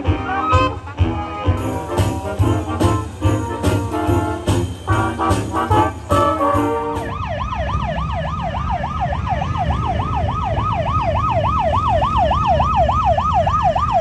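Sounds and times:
siren warbling: 4.5s - 14.0s.

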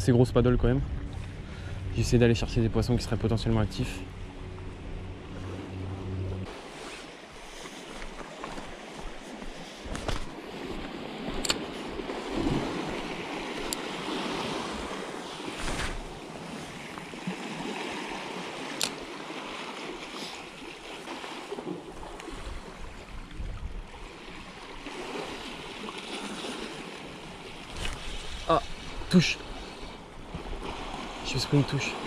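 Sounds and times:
wind on microphone: 22.3s - 24.0s.

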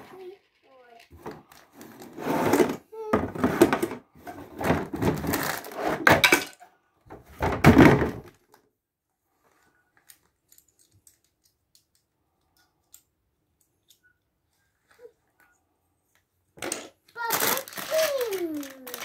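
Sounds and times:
plastic bricks clattering from box: 4.6s - 6.6s, 16.6s - 19.0s.

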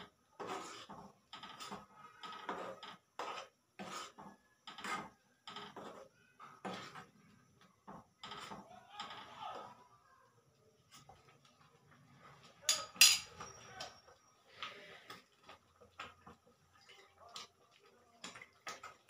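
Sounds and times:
metal spoon clattering on pan: 12.7s - 13.6s.

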